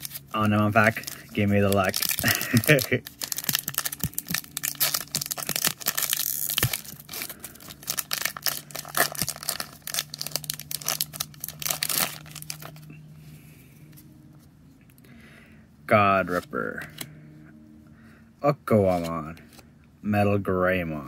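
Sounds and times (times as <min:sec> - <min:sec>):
foil wrapper tearing and crinkling: 0:00.0 - 0:12.9.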